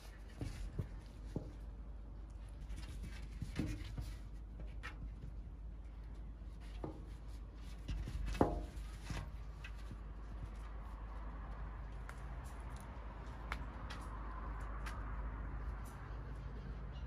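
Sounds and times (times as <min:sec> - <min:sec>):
kitten paws scratching concrete: 0:00.0 - 0:17.0.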